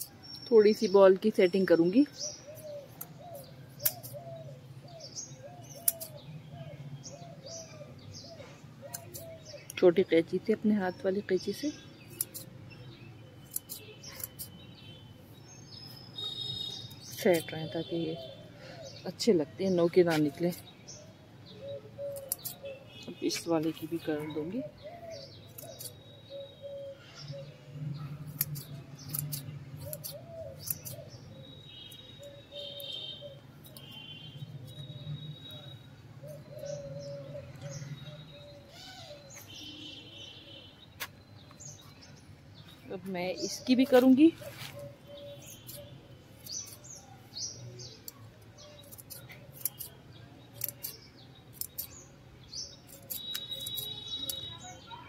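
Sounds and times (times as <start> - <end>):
small birds chirping: 0.0 - 55.0
scissors snipping foliage: 2.9 - 4.3, 5.6 - 6.2, 8.9 - 9.8, 11.4 - 12.5, 13.4 - 14.6, 16.7 - 17.6, 22.1 - 22.6, 25.2 - 26.0, 28.2 - 31.2, 33.6 - 34.0, 43.1 - 52.1, 52.7 - 54.7.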